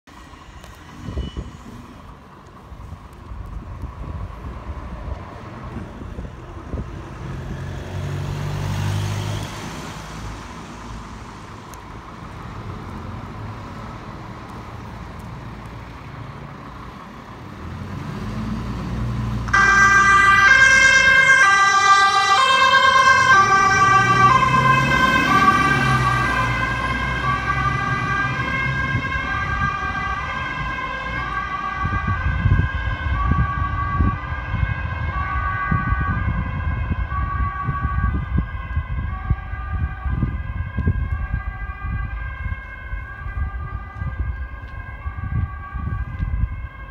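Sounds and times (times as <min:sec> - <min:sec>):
fire engine diesel engine: 0:00.1 - 0:46.9
two-tone siren: 0:00.4 - 0:02.0, 0:19.5 - 0:46.9.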